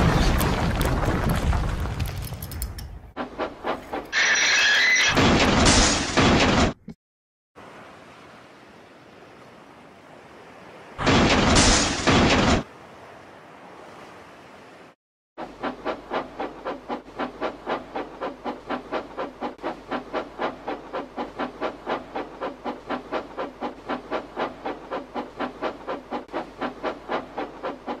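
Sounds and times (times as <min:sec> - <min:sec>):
steam locomotive chuffing: 0:15.4 - 0:28.0.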